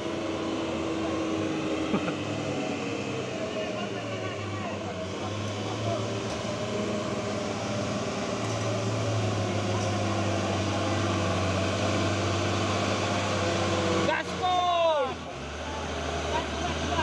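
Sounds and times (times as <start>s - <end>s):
truck diesel engine pulling: 0.0s - 17.0s.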